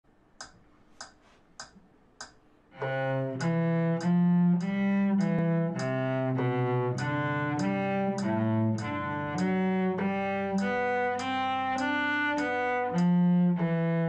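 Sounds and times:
metronome ticking: 0.4 - 14.0
cello bowing held notes: 2.8 - 14.0.

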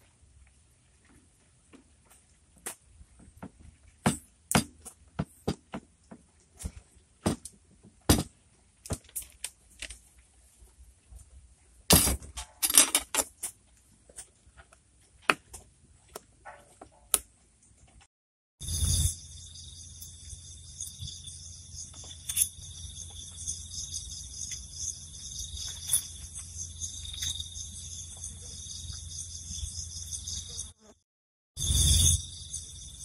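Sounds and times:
insects chirring: 18.6 - 31.0, 31.6 - 33.0.

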